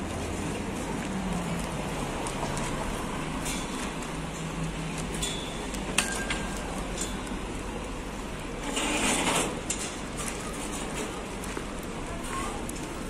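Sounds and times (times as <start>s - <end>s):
city background hum: 0.0s - 13.0s.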